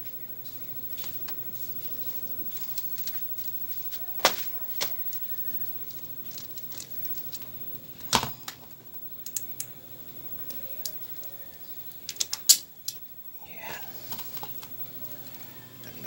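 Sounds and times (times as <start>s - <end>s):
clicks and taps of fan parts: 9.2s - 9.7s, 12.0s - 13.0s.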